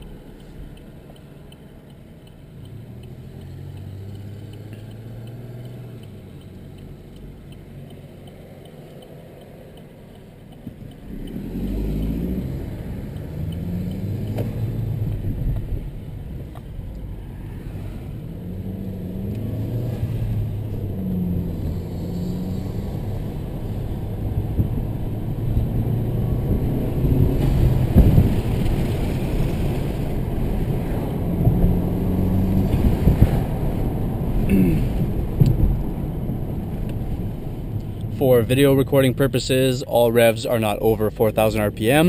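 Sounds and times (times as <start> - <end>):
car engine accelerating: 0.0 - 42.0
rushing road noise: 0.0 - 42.0.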